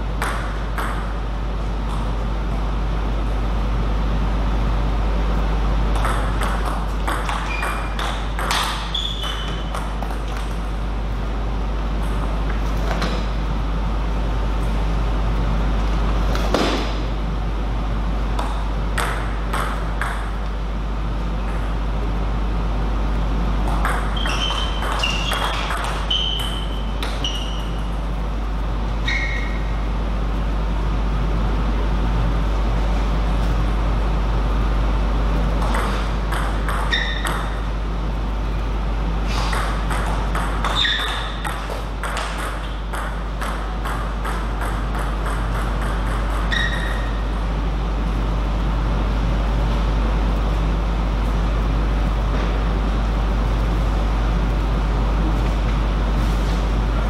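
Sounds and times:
table tennis ball hits: 0.2 - 1.2, 5.9 - 10.6, 16.3 - 17.0, 18.4 - 20.5, 23.6 - 27.7, 35.6 - 37.7, 39.4 - 47.1
shoe squeaks: 7.2 - 9.8, 24.1 - 27.9, 29.0 - 29.7, 36.8 - 37.6, 40.6 - 41.5, 46.3 - 47.2.

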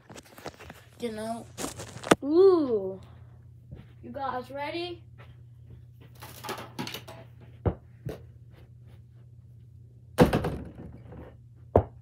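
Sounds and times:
ball hitting backboard and rim: 10.2 - 11.2.

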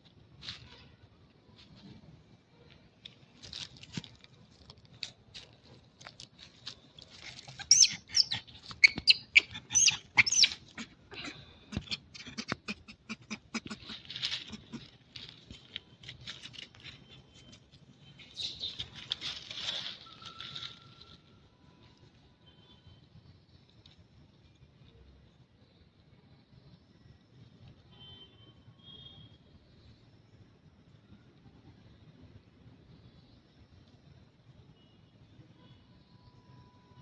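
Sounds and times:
monkeys squealing: 7.4 - 14.9.

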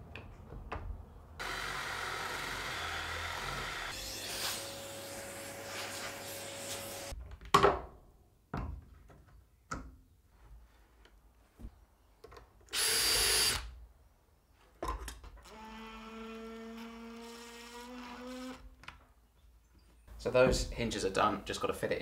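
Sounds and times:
drill boring into wood: 1.4 - 4.0, 12.7 - 13.7.

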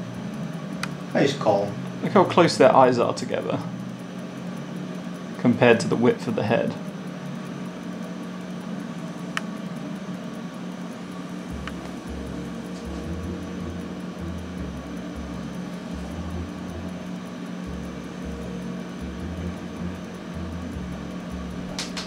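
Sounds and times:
mechanical hum of equipment: 0.0 - 22.0
low throbbing rumble: 11.4 - 22.0.

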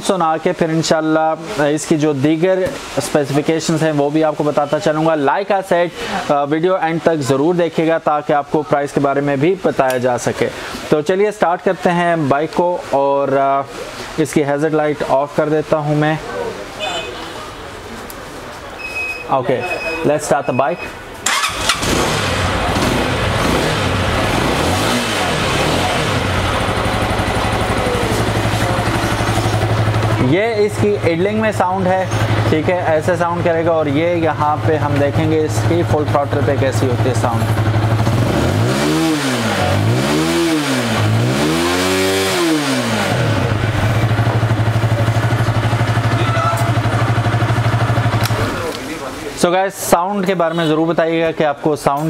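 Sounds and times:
motorcycle engine starting and idling: 21.2 - 49.0.

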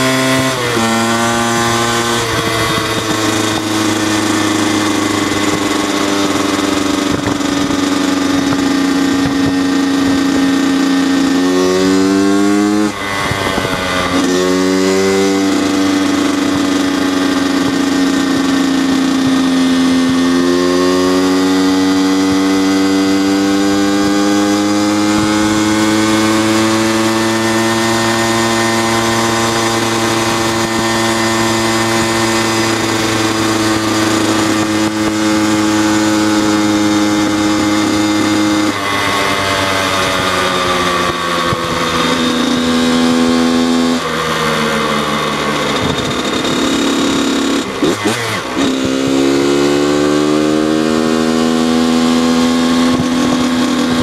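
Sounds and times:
dirt bike engine running: 0.0 - 54.0.

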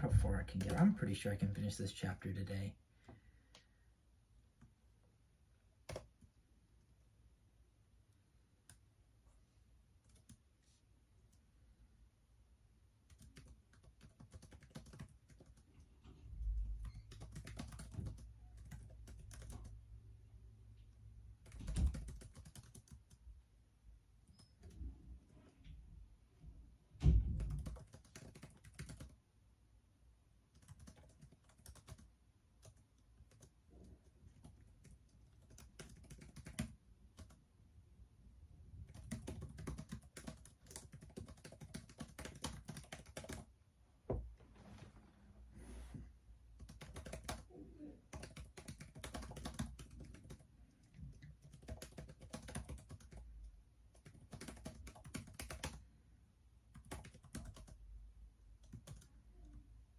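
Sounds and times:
laptop keyboard typing: 0.1 - 1.0, 5.8 - 6.4, 10.0 - 10.5, 13.0 - 15.9, 16.5 - 19.9, 21.4 - 23.3, 24.2 - 24.8, 27.2 - 29.2, 30.5 - 37.4, 38.8 - 43.5, 46.6 - 47.5, 48.1 - 53.3, 53.9 - 55.8, 56.7 - 57.8, 58.6 - 59.6.

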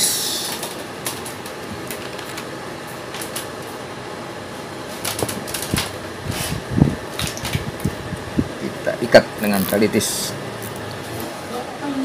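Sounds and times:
cable ties clicking and rustling: 5.0 - 6.0
steady background hiss: 7.9 - 12.0.

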